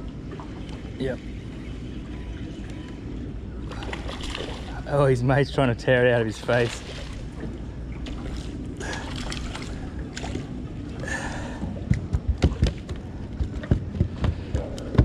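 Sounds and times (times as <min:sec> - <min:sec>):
water washing: 0:03.6 - 0:13.2.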